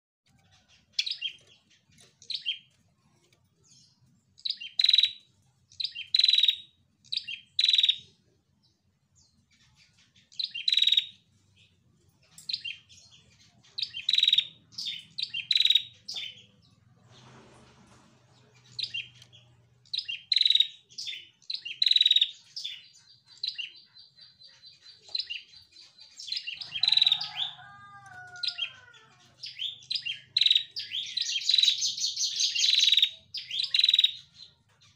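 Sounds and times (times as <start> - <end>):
bird chirping: 0.3 - 34.9.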